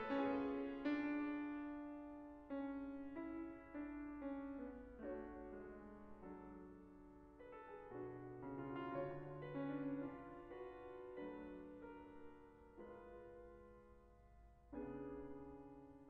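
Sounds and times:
grand piano slow melody: 0.0s - 16.0s.

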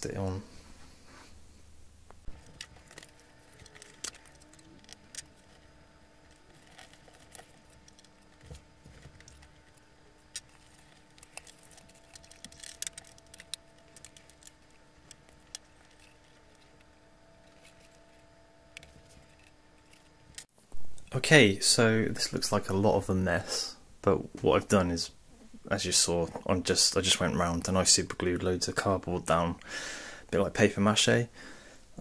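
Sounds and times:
faint steady hum: 0.0s - 32.0s
paper rustling: 2.2s - 20.5s.

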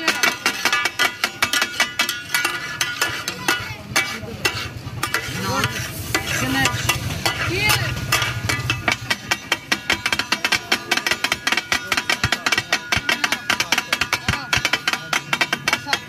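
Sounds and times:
steel spatulas clanking on iron: 0.0s - 16.0s
oil sizzling: 0.5s - 13.0s.

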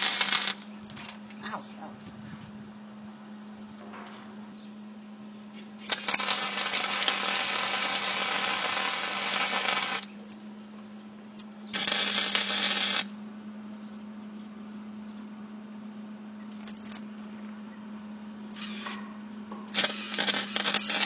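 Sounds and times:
welding arc crackling and sizzling: 0.0s - 1.3s, 5.6s - 10.3s, 11.7s - 13.2s, 18.6s - 19.0s, 19.6s - 21.0s
steady low hum: 0.0s - 21.0s.

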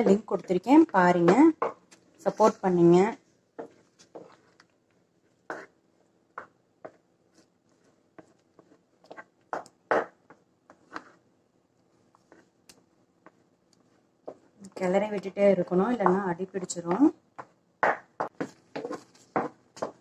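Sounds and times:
spatula scraping a pan: 3.6s - 4.6s, 5.4s - 5.8s, 6.4s - 11.2s, 18.4s - 20.0s.

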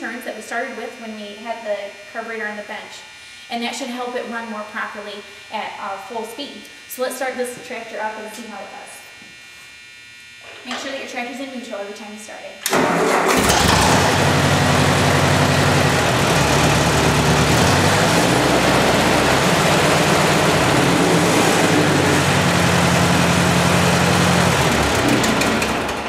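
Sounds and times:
tractor engine running: 12.8s - 26.0s.

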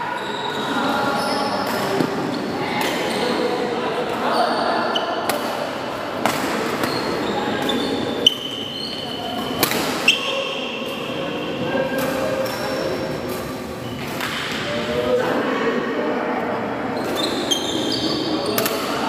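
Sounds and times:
voices echoing in hall: 0.0s - 19.0s
shoes squeaking on court: 0.1s - 3.5s, 6.6s - 10.4s, 17.0s - 18.6s
racket hitting shuttlecock: 9.5s - 10.1s.

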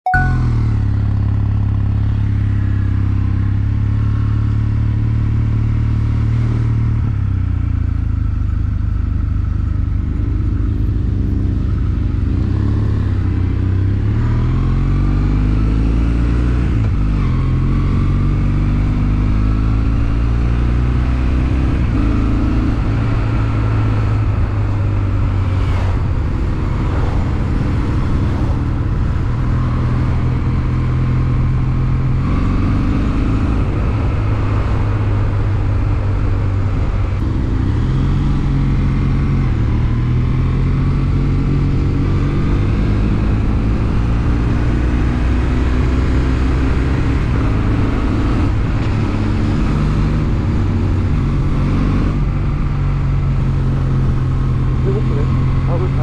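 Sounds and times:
motorcycle engine running: 16.5s - 56.0s.

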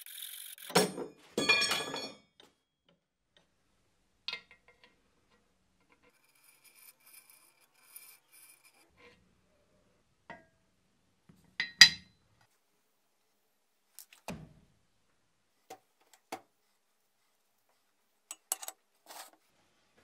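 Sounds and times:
rasping metal scrape: 6.0s - 9.2s, 18.4s - 19.4s.

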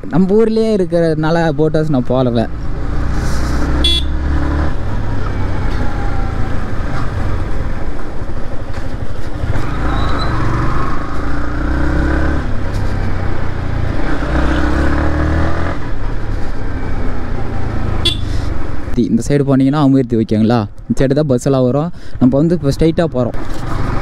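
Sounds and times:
motorcycle engine accelerating: 2.2s - 18.6s.

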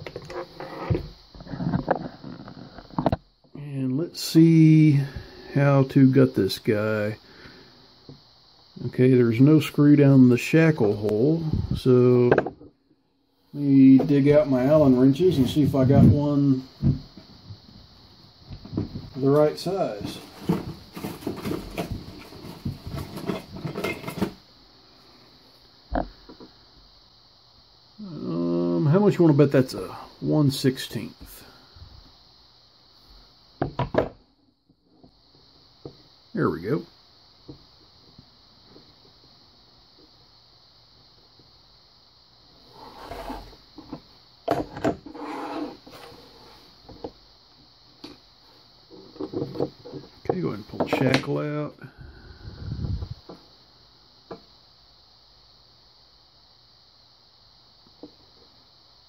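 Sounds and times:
object scraping on table: 0.2s - 2.1s, 42.7s - 43.6s, 44.6s - 46.2s.

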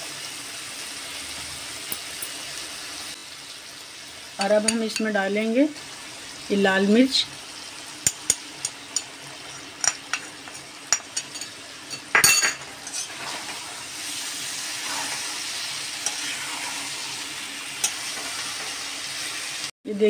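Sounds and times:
vegetables sizzling: 0.0s - 19.8s
metal spatula clinking in pan: 9.8s - 13.1s.

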